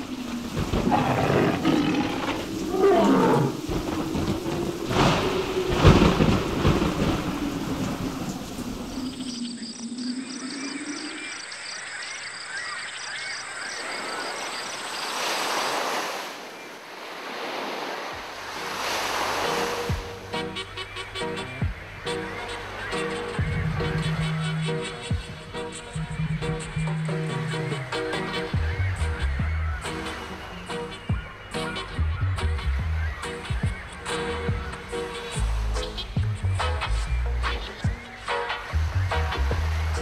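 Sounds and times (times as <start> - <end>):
thunder cracks and rumbling: 0.0 - 10.6
surf washing in: 0.0 - 12.0, 13.1 - 40.0
high chirping: 6.4 - 15.6.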